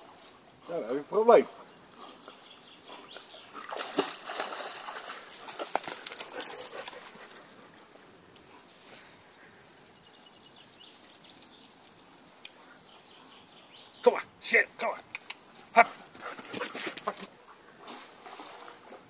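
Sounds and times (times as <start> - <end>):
dog splashing in river: 3.1 - 7.8, 16.0 - 19.0.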